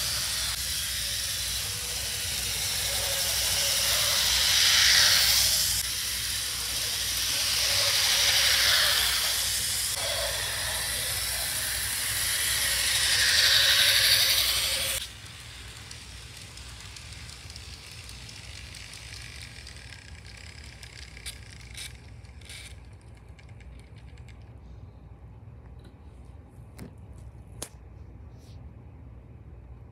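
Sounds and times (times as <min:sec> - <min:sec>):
model train whirring: 0:00.0 - 0:24.6.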